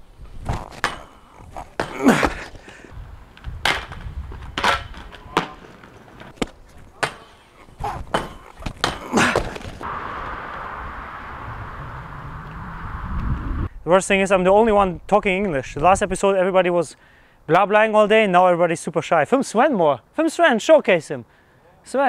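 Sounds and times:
inline skates clacking on concrete: 0:00.5 - 0:09.8
steady rushing noise: 0:09.8 - 0:13.9.

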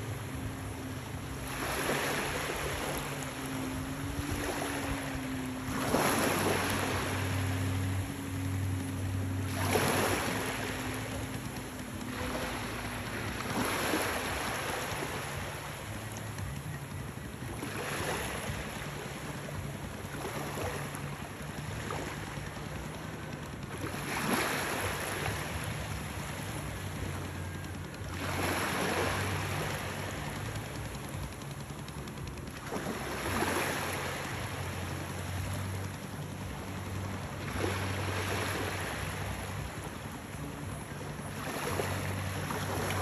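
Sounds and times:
low steady hum: 0:00.0 - 0:43.0
small waves washing onto beach: 0:00.0 - 0:43.0.

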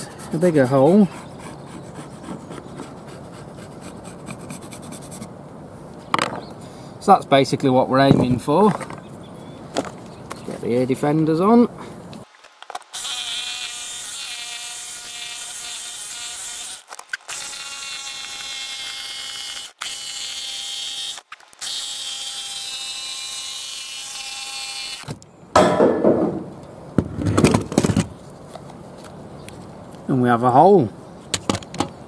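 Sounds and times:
jigsaw cutting steel: 0:12.9 - 0:25.1.

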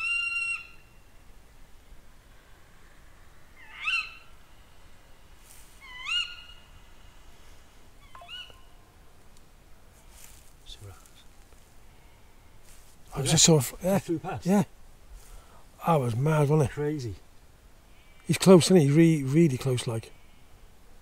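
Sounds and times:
owl calls: 0:00.0 - 0:01.0, 0:03.5 - 0:04.7, 0:05.7 - 0:07.2, 0:08.0 - 0:08.9.

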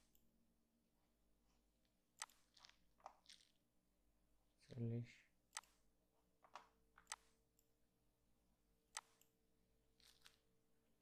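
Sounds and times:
computer mouse clicks: 0:02.2 - 0:03.5, 0:05.5 - 0:05.8, 0:06.5 - 0:07.7, 0:08.9 - 0:09.4.

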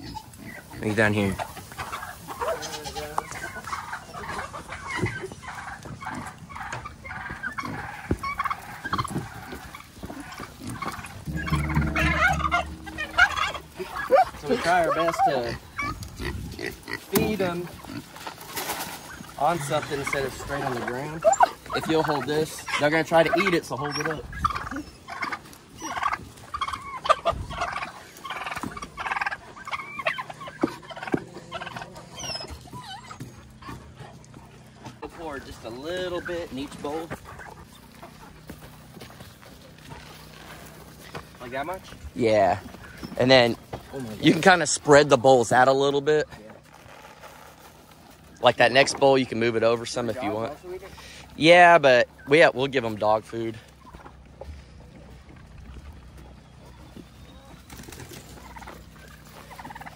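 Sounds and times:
turkeys gobbling: 0:00.0 - 0:59.9
dull thumps: 0:10.8 - 0:14.0
sharp knocks: 0:11.2 - 0:13.7.

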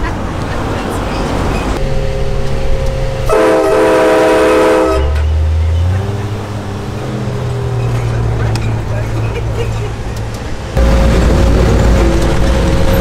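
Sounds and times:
truck engine running: 0:00.0 - 0:13.0
train horn chord: 0:01.8 - 0:05.3.

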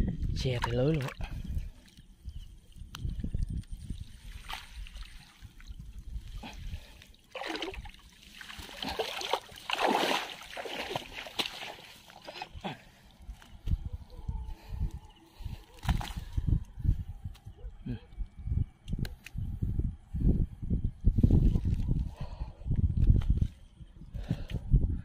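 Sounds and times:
water splashing and dripping: 0:00.5 - 0:02.0, 0:02.8 - 0:06.1, 0:06.9 - 0:12.6.

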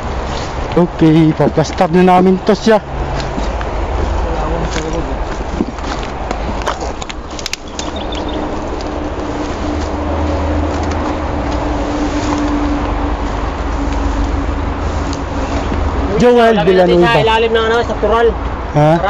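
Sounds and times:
vehicle engine rumbling: 0:00.0 - 0:19.0
clicks and rustles: 0:04.6 - 0:09.9.

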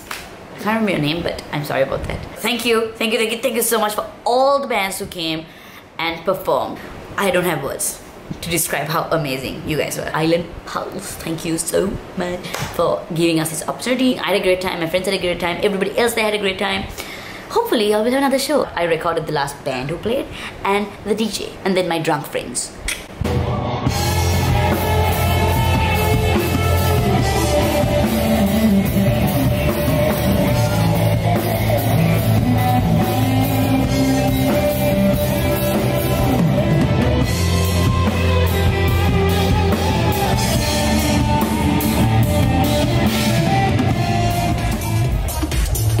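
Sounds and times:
drum kit: 0:23.1 - 0:46.0
electric guitars: 0:23.2 - 0:46.0.

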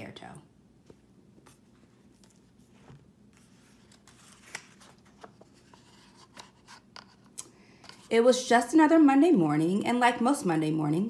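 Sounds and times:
soft rustle of paper: 0:00.8 - 0:08.2.

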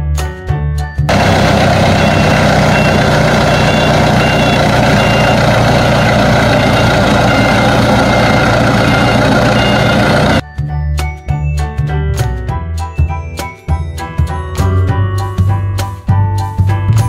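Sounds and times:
tow tractor engine running: 0:01.1 - 0:10.4
short high warning beeps: 0:01.9 - 0:10.4.

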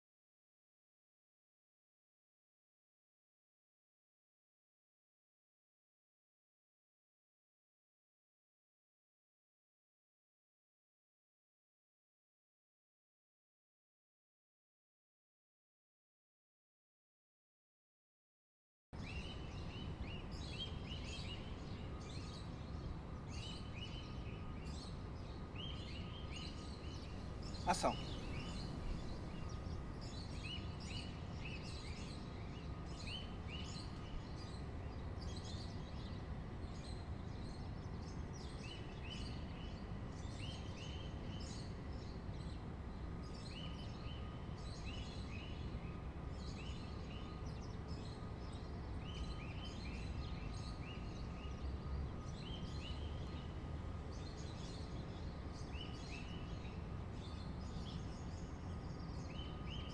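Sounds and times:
small birds chirping: 0:19.0 - 0:59.9.

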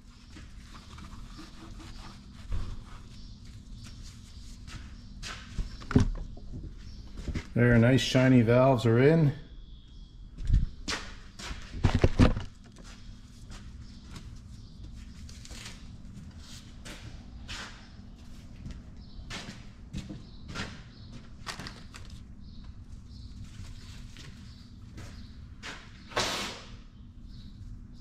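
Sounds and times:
faint steady hum: 0:00.0 - 0:26.2
handling knocks and clunks: 0:11.7 - 0:12.8.

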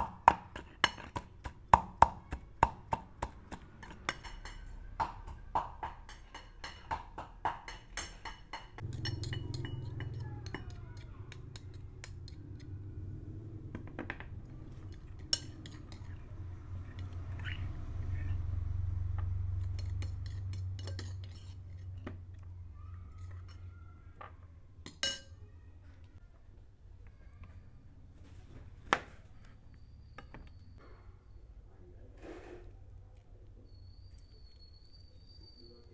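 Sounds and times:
dishes and utensils clinking: 0:03.8 - 0:05.1, 0:05.9 - 0:12.6, 0:14.7 - 0:17.6, 0:19.5 - 0:22.2, 0:24.8 - 0:25.4
low steady hum: 0:08.8 - 0:23.1.

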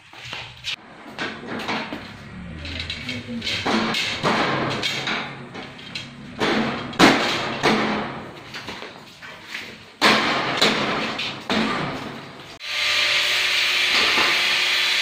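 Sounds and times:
metal shelf panel banging: 0:01.1 - 0:08.9, 0:10.0 - 0:12.4.

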